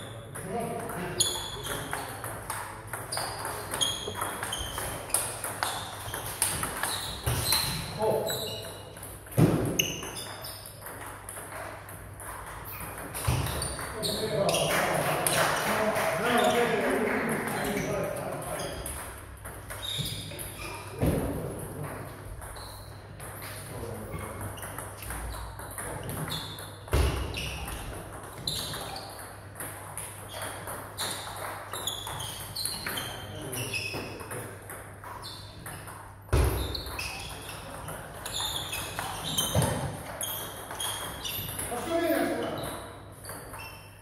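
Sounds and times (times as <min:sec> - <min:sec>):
table tennis balls clicking: 0:00.4 - 0:07.8, 0:08.6 - 0:20.7.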